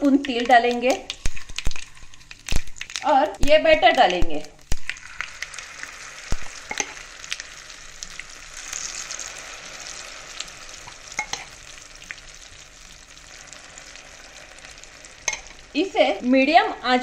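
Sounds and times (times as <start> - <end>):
small pops and crackles: 0.0 - 9.3
oil sizzling in frying pan: 0.0 - 17.0.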